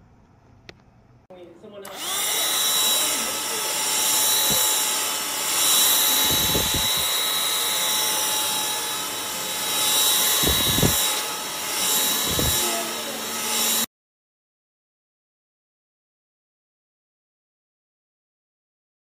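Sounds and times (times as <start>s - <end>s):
stick vacuum running: 1.8s - 13.9s.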